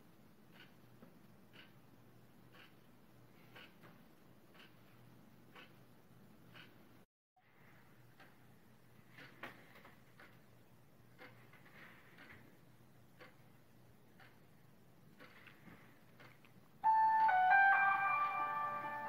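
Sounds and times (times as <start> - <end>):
faint clock ticking: 0.0 - 19.0
electronic melody: 16.8 - 19.0.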